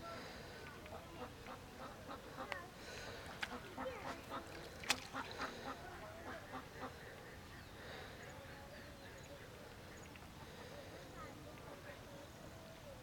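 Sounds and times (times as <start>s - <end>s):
ducks quacking: 1.2s - 10.0s.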